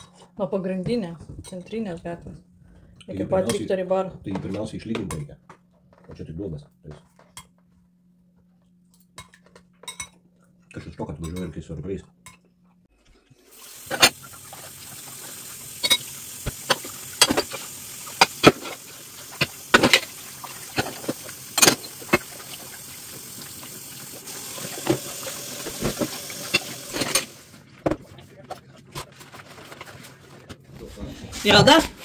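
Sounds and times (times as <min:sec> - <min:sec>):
ceramic dishes clinking: 0:09.2 - 0:10.2.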